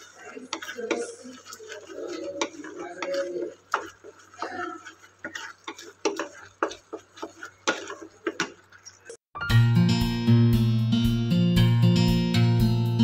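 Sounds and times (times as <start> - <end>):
spatula scraping and tapping pan: 0.0 - 9.2.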